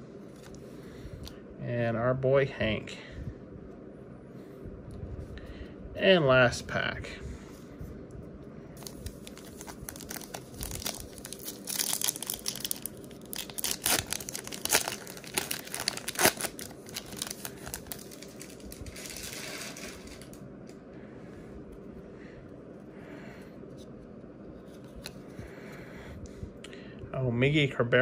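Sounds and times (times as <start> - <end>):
wrapper crinkling and tearing: 8.8 - 20.4.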